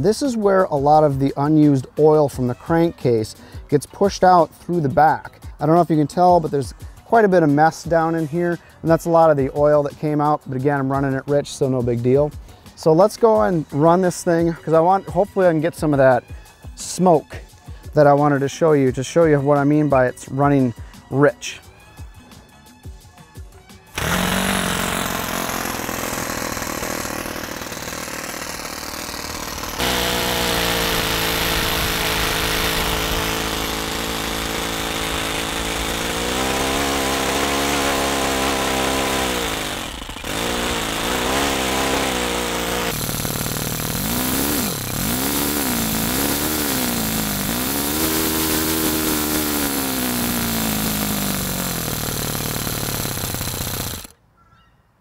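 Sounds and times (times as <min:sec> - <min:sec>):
model engine revving: 0:23.9 - 0:54.1
electric starter whirring: 0:23.9 - 0:54.2.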